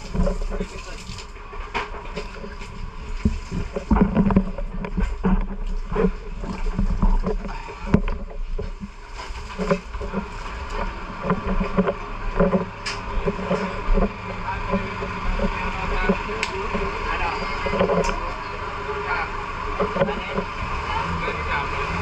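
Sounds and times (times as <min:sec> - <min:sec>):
knocks and clatter: 0:00.0 - 0:18.4, 0:19.7 - 0:20.6
low engine drone: 0:00.0 - 0:22.0
faint voices: 0:09.5 - 0:22.0.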